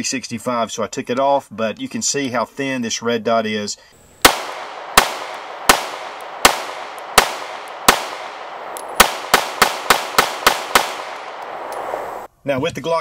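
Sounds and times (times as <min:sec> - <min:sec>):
pistol shots echoing: 0:04.2 - 0:12.3.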